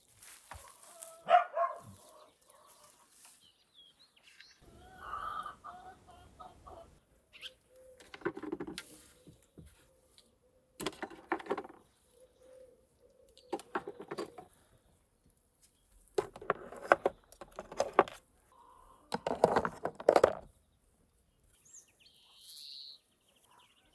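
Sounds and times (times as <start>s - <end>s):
straw rustling: 0.0s - 3.6s
hens clucking: 4.6s - 7.1s.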